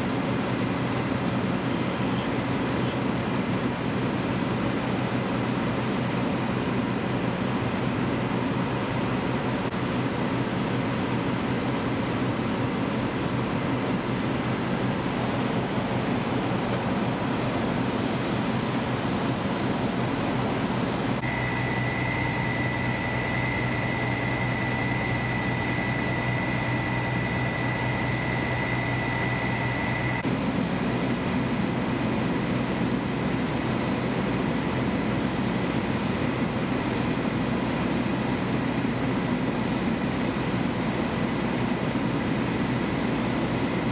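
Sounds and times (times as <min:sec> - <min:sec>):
diesel engines and pumps rumbling: 0:00.0 - 0:43.9.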